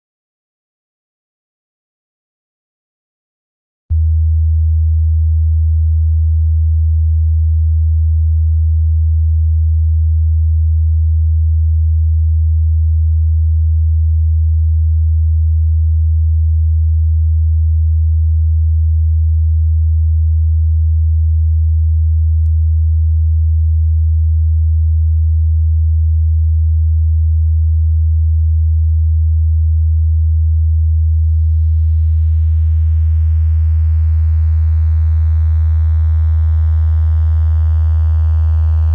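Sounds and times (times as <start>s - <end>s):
low pure sine tone: 3.9s - 38.9s
buzzy higher overtones: 31.0s - 38.9s.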